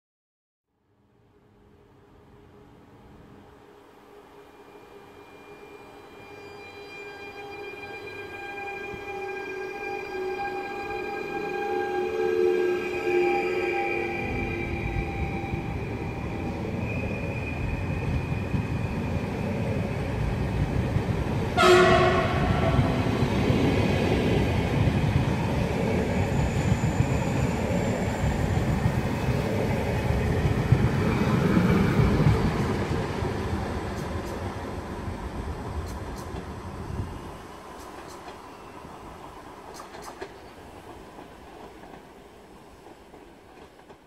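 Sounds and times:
train rumbling: 1.8 - 44.0
train horn blast: 6.4 - 14.1, 21.6 - 23.4.

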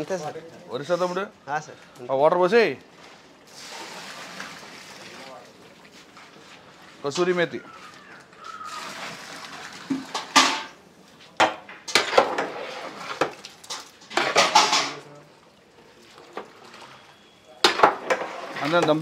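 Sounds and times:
water pouring: 2.8 - 7.3, 8.6 - 10.8, 11.9 - 19.0
metal ladle scraping a pot: 11.9 - 15.0, 17.2 - 19.0.

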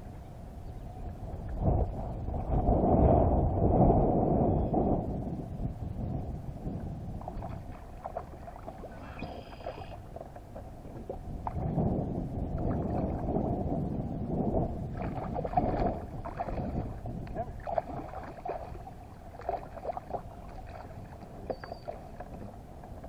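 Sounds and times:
water splashing from thrashing fish: 15.0 - 22.4.

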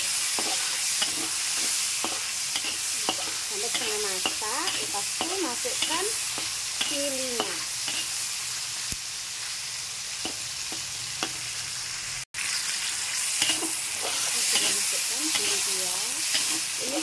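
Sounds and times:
metal spatula scraping a wok: 0.0 - 8.3, 13.3 - 17.0
stir-frying sizzle in oil: 0.0 - 17.0.

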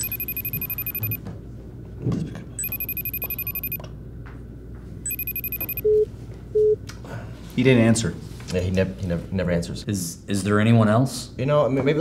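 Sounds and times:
telephone ringing trill: 0.0 - 1.2, 2.6 - 3.8, 5.1 - 6.0.

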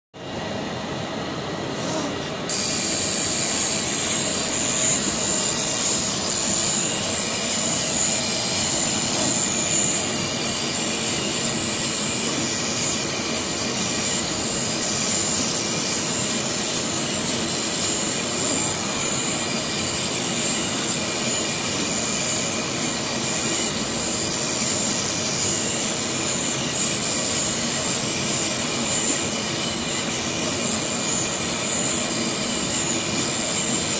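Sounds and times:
cutting machine hiss and whine: 0.2 - 33.9.

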